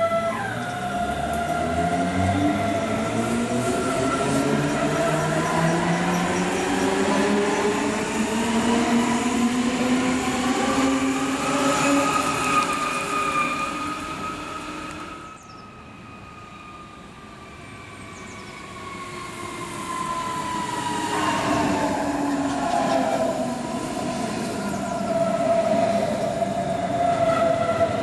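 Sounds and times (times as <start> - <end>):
wheel and rail rumble: 17.7 - 28.0.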